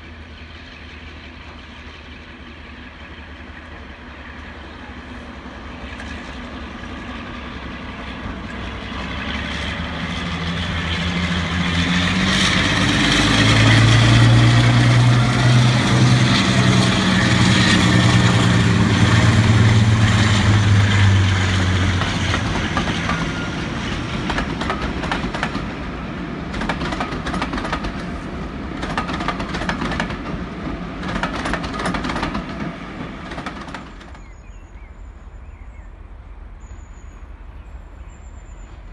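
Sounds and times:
diesel locomotive engine throbbing: 0.0s - 38.9s
train wheels clicking over rail joints: 8.4s - 34.6s.

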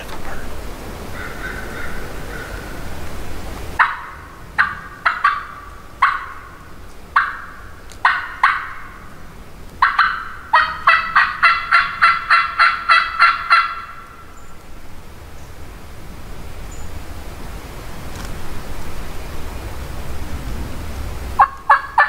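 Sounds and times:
turkey yelps: 1.1s - 2.8s, 3.8s - 6.6s, 7.2s - 9.0s, 9.8s - 14.1s, 21.4s - 22.0s
turkey call cutting notes: 3.8s - 6.6s, 9.8s - 14.2s, 21.4s - 22.0s.

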